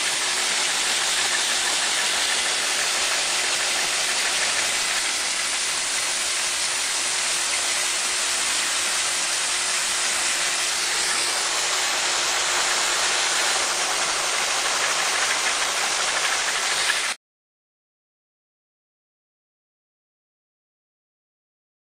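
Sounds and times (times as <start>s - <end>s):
air engine hissing: 0.0s - 17.2s.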